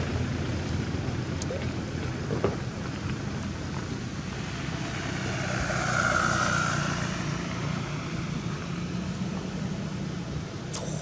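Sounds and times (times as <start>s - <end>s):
vehicle passing: 3.4s - 10.1s.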